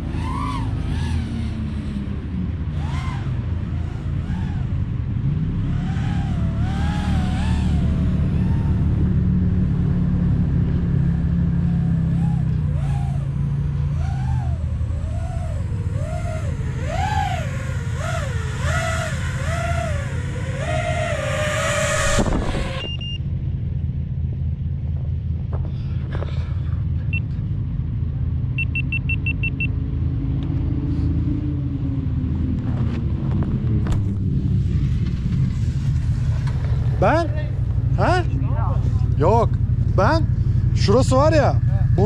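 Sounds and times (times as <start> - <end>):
quadcopter motors whining: 2.7 - 4.9, 5.7 - 9.2, 11.4 - 23.1
low rumble: 12.2 - 42.0
drone landing clatter: 15.6 - 23.6, 32.8 - 37.8.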